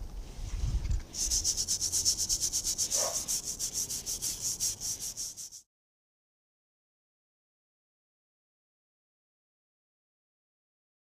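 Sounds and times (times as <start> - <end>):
brush scrubbing metal: 1.1 - 5.6.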